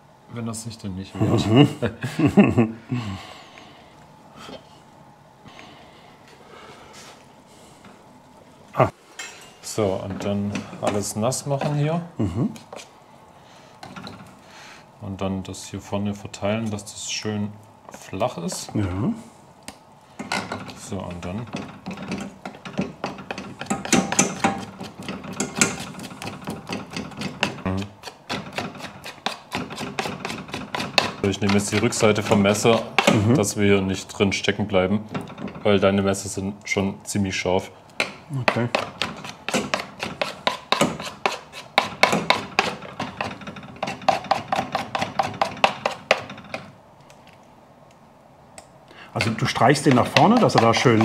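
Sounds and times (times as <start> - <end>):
knife scraping dough off board: 23.3 - 33.3, 38.7 - 46.7, 49.2 - 51.0.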